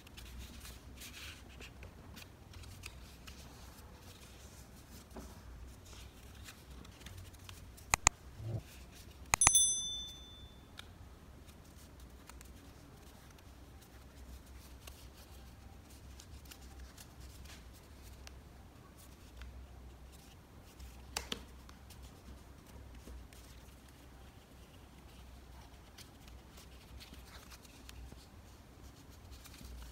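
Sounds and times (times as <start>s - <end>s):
sharp clicks: 8.0s - 8.6s
short bell ding: 9.4s - 10.7s.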